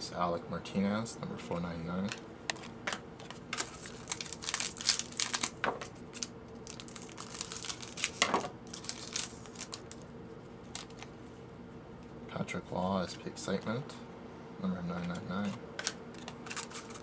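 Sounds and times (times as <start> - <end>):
foil wrapper crinkling: 3.3 - 10.1, 10.7 - 11.1, 16.1 - 17.0.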